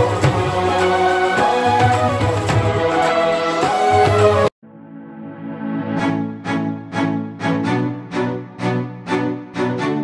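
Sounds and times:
instrumental music with steady beat: 0.0s - 4.5s.

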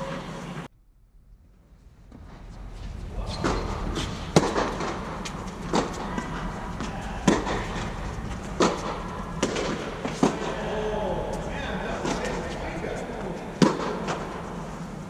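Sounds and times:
rackets hitting tennis ball: 3.3s - 15.0s.

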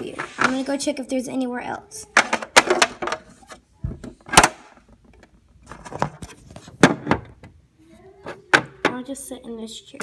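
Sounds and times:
plastic toys clicking and knocking: 2.0s - 7.6s.

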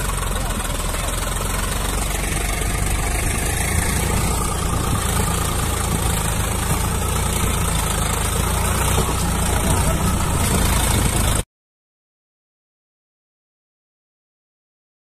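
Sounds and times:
tractor diesel engine running: 0.0s - 11.4s.

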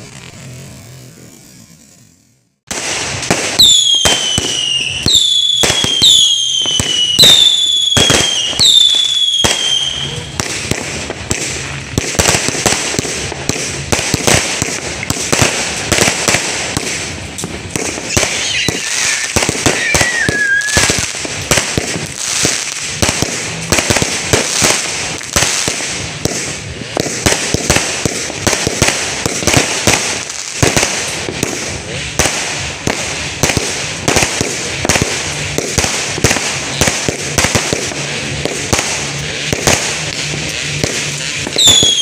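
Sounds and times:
fireworks bangs and crackles: 0.0s - 42.0s
wavering falling whistle: 18.4s - 20.9s.

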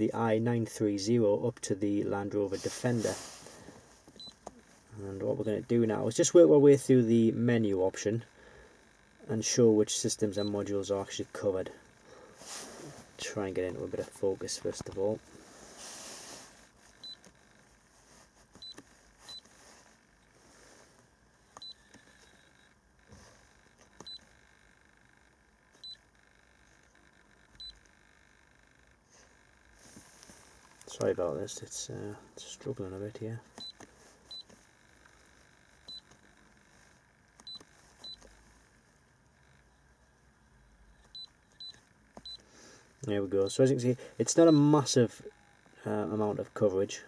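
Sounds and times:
high electronic key beeps: 18.6s - 19.4s, 21.6s - 22.7s, 24.0s - 24.3s, 33.6s - 34.5s, 35.8s - 36.1s, 37.4s - 38.2s, 41.0s - 42.4s, 44.4s - 45.8s.

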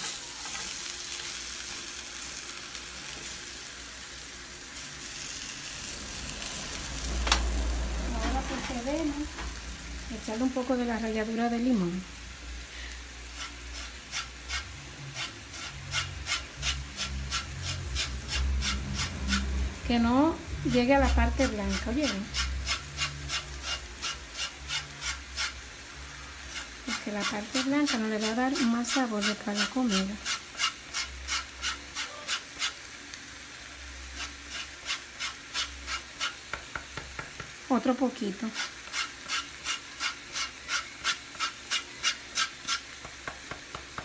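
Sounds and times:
lime rasping on metal grater: 13.3s - 19.5s, 20.7s - 25.6s, 26.5s - 32.8s, 34.2s - 36.4s, 38.5s - 42.9s.

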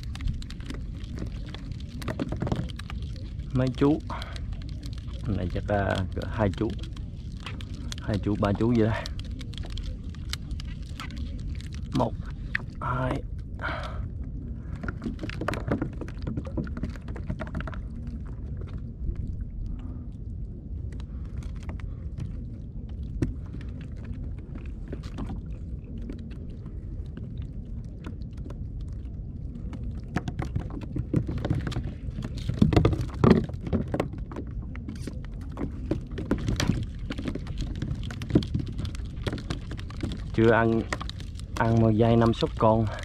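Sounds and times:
knocks and clatter on kayak: 0.0s - 4.5s, 14.7s - 18.8s, 29.6s - 43.0s
wind and water rumble: 0.0s - 43.0s.

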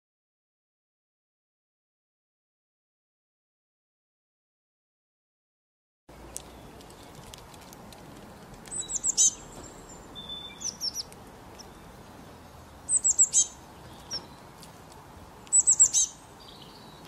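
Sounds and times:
small songbird chirping: 6.2s - 7.4s, 8.3s - 14.7s, 15.3s - 17.0s.

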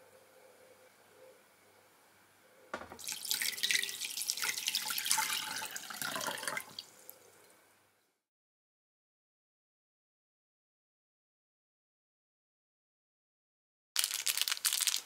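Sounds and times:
water dripping: 2.8s - 7.2s
water pouring into glass bowl: 3.0s - 7.0s.

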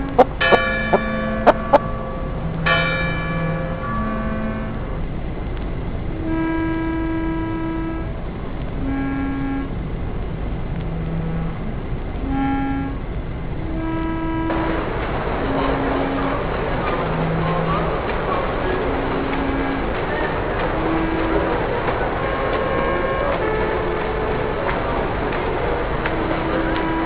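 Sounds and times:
held pitched tones: 0.0s - 1.9s
steady background noise: 0.0s - 27.0s.

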